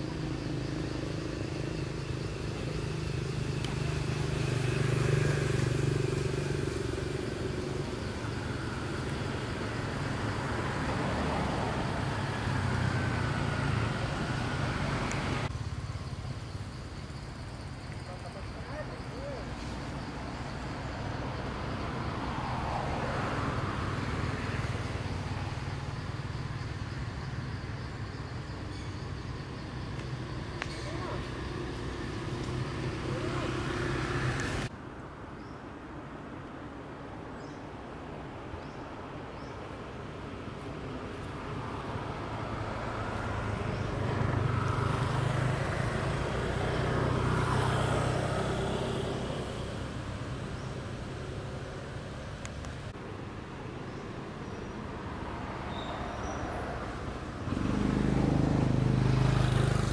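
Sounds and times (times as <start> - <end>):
vehicle engine hum: 0.0 - 34.7.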